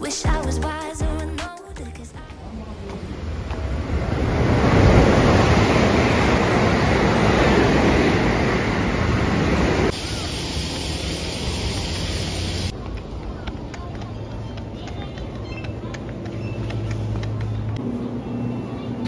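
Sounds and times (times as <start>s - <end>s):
outdoor street ambience: 0.0s - 19.0s
loud rushing noise: 3.0s - 12.7s.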